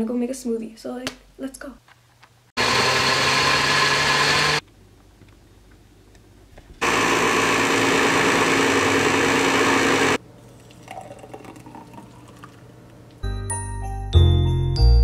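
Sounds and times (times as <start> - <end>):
blender motor running: 2.6 - 4.6, 6.8 - 10.2
smoothie pouring into glass: 6.8 - 12.7.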